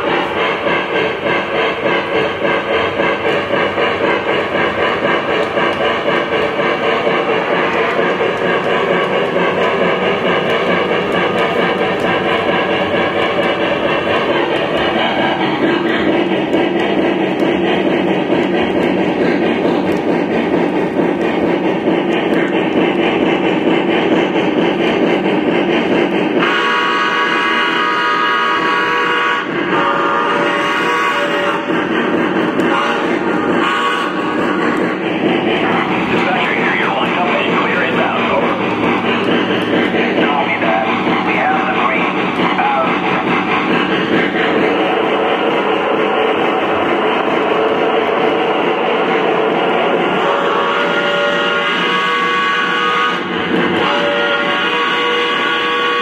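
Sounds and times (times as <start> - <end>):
model train wheels rumbling: 0.0 - 56.0
steam whistle blasts: 26.4 - 31.7, 32.6 - 34.2, 50.2 - 56.0.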